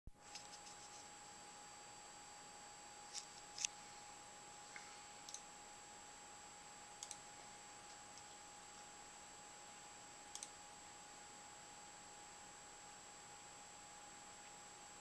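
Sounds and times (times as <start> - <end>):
faint electronic whine: 0.1 - 15.0
computer mouse clicks: 3.1 - 3.8, 4.8 - 5.5, 7.0 - 7.2, 10.3 - 10.6.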